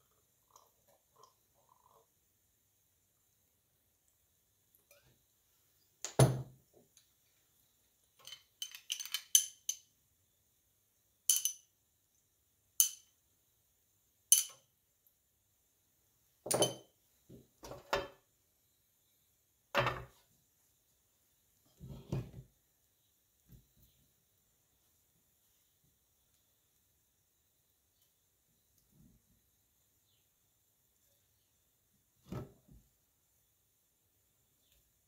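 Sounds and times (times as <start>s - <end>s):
utensil clinking against cookware: 8.2s - 9.8s, 11.3s - 11.6s, 14.3s - 14.6s.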